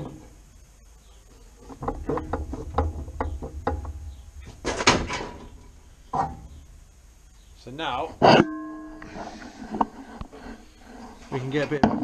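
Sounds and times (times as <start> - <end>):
sheet steel knocks and clicks: 1.7 - 6.5
loud metallic clatter: 1.8 - 6.5.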